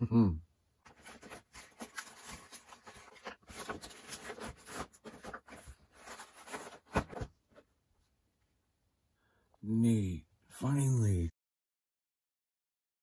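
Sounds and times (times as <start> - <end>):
cardboard box rustling and scraping: 0.9 - 7.3.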